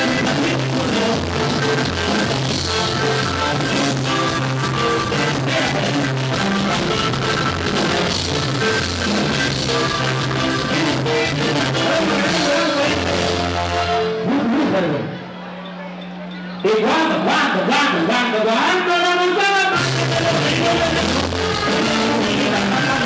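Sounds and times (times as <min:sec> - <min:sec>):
drums: 0:00.0 - 0:14.7, 0:19.8 - 0:23.0
bass line: 0:00.0 - 0:15.2, 0:19.8 - 0:23.0
accordion: 0:00.0 - 0:15.8, 0:19.8 - 0:23.0
guitar: 0:00.0 - 0:17.4, 0:19.7 - 0:23.0.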